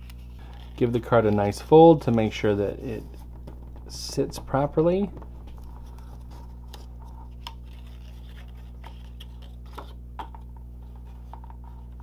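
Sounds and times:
steady low hum: 0:00.0 - 0:12.0
paper rustles: 0:05.1 - 0:10.0.

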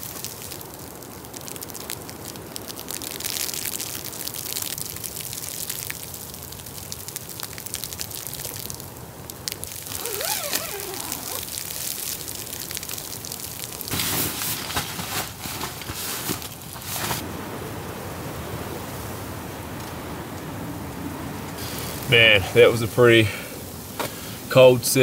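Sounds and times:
sleet pattering on fabric: 0:09.8 - 0:11.6, 0:13.9 - 0:17.2
short wavering squeak: 0:10.0 - 0:11.4.

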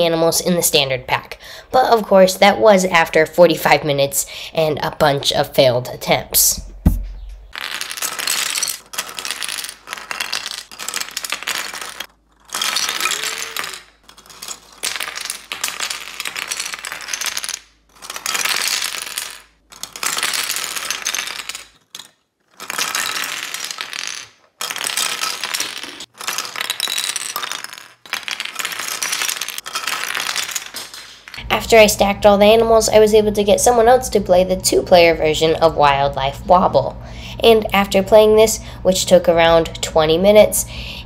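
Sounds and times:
plastic pieces clattering on table: 0:07.5 - 0:31.4.

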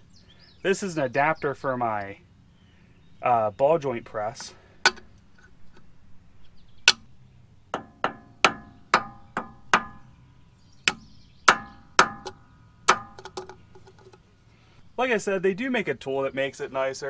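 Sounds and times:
sledgehammer striking metal: 0:07.8 - 0:10.1, 0:10.9 - 0:13.3.

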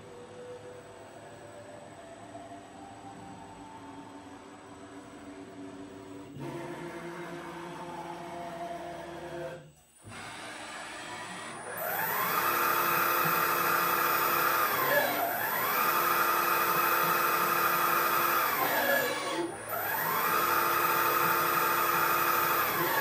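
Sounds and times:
servo motor whine: 0:09.4 - 0:23.0.

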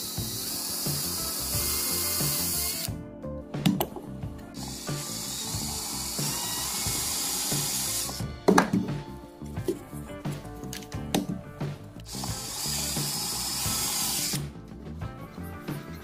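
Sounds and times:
cordless drill boring plastic: 0:00.0 - 0:02.9, 0:04.6 - 0:08.2, 0:12.1 - 0:14.4
background music with steady beat: 0:00.0 - 0:16.0.

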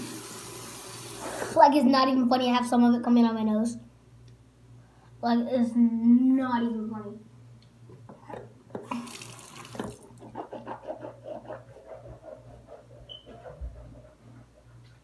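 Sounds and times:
tap running: 0:08.1 - 0:10.2
water splashing in basin: 0:08.8 - 0:10.1.

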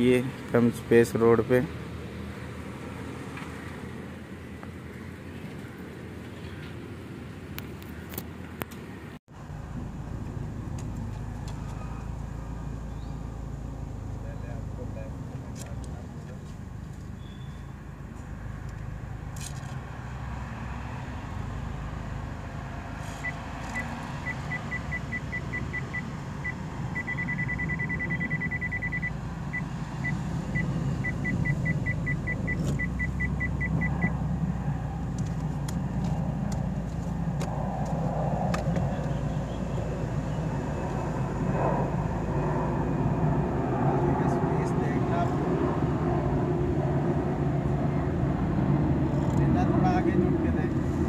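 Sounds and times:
car engine running at low speed: 0:00.1 - 0:45.3
parking sensor beeping: 0:23.2 - 0:34.2.

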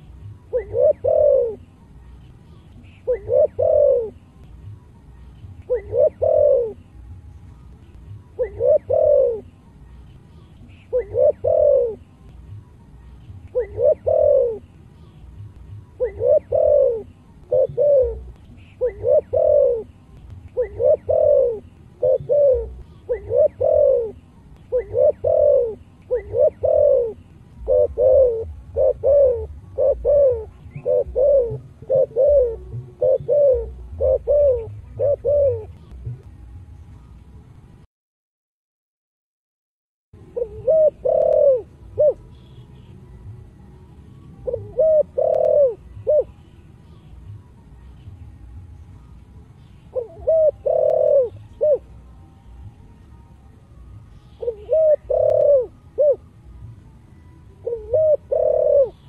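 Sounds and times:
dove cooing: 0:00.0 - 0:04.4, 0:05.0 - 0:07.0, 0:08.1 - 0:15.1, 0:15.8 - 0:36.2, 0:40.2 - 0:42.9, 0:44.4 - 0:46.5, 0:49.8 - 0:52.0, 0:54.2 - 0:56.3, 0:57.6 - 0:59.0.

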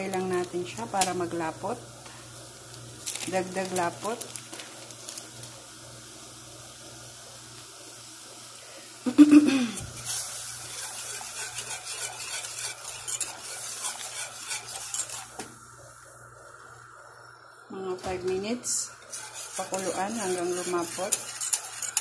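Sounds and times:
faint steady hum: 0:00.0 - 0:22.0
whisk scraping a metal saucepan: 0:10.0 - 0:15.5, 0:18.6 - 0:22.0.

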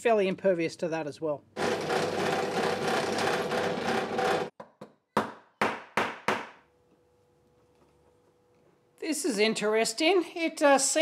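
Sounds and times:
drill press cutting into metal: 0:01.6 - 0:04.5.

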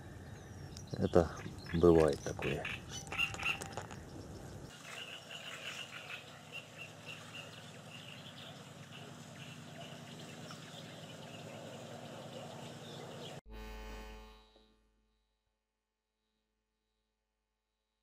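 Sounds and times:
low hum: 0:07.3 - 0:15.5.

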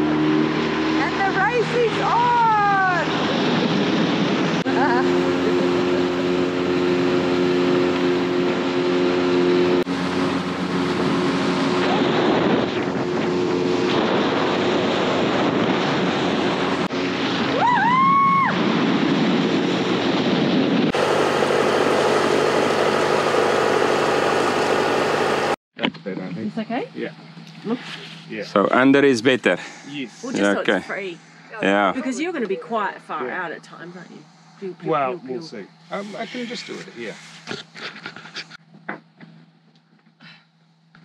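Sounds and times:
steady engine: 0:00.0 - 0:17.5, 0:18.7 - 0:25.6
wind on microphone: 0:00.0 - 0:22.7
outboard motor running: 0:04.6 - 0:17.4, 0:20.9 - 0:25.6.

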